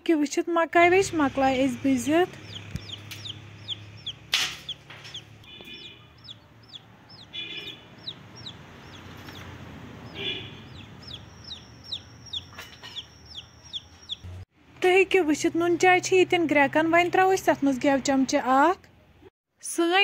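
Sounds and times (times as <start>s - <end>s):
chick peeping: 2.3s - 14.3s.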